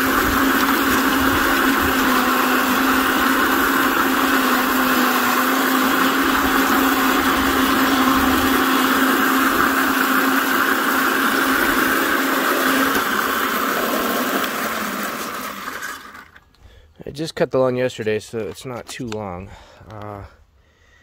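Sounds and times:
reel mower whirring: 0:00.0 - 0:16.6
motor hum: 0:00.0 - 0:16.8.

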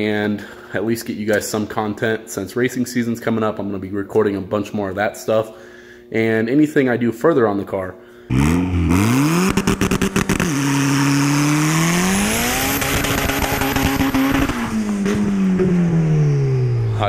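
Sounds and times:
car engine revving: 0:08.3 - 0:17.0.

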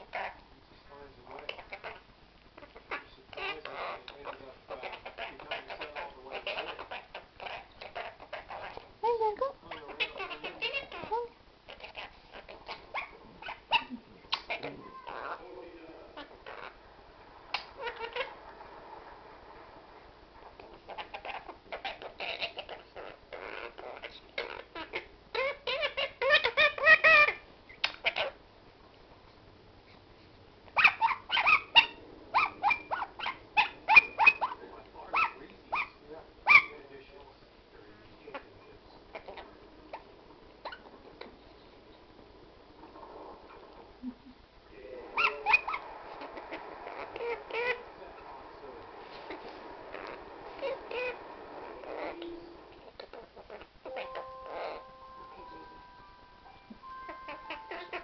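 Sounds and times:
parrot chattering: 0:00.0 - 0:00.4, 0:01.2 - 0:15.5, 0:16.1 - 0:16.8, 0:17.5 - 0:18.5, 0:20.5 - 0:28.4, 0:30.7 - 0:36.8, 0:38.3 - 0:42.0, 0:45.0 - 0:58.0
parrot squawking: 0:00.0 - 0:00.4, 0:01.3 - 0:15.5, 0:16.1 - 0:16.9, 0:17.5 - 0:18.6, 0:20.4 - 0:28.4, 0:30.7 - 0:36.9, 0:38.3 - 0:41.5, 0:45.1 - 0:48.4, 0:49.0 - 0:58.0.

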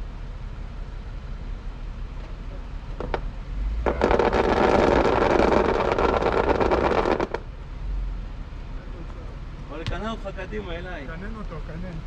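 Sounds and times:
car engine revving: 0:03.0 - 0:07.6
tyres spinning on dirt: 0:03.0 - 0:07.6.

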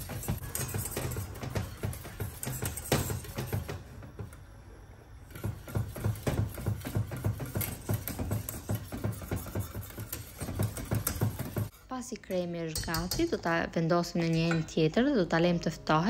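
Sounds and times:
whisk clinking against metal pot: 0:05.6 - 0:11.7, 0:12.7 - 0:13.4.

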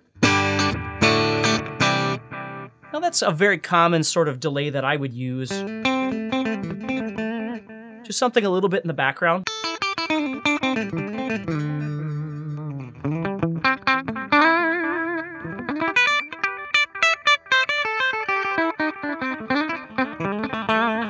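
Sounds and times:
clean electric guitar with delay: 0:05.5 - 0:08.1, 0:09.4 - 0:21.0.

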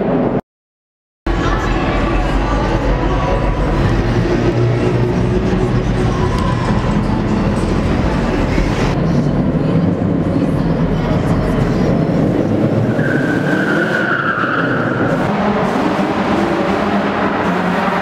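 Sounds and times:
car engines running hard: 0:01.3 - 0:18.0
tyres squealing on pavement: 0:12.8 - 0:15.2.

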